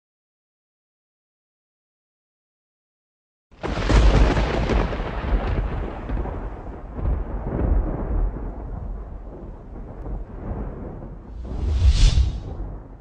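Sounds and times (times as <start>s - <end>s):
cinematic boom with deep rumble: 11.3s - 12.8s.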